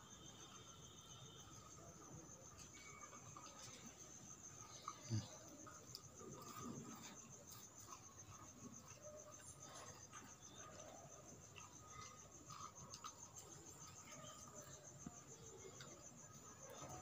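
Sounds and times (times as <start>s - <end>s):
crickets chirping: 0.0s - 17.0s.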